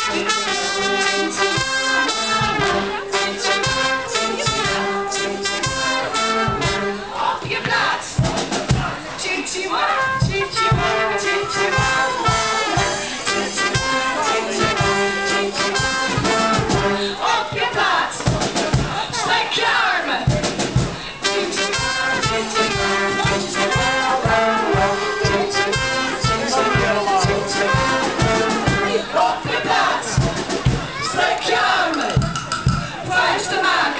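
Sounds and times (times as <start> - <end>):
brass band playing: 0.0 - 33.9.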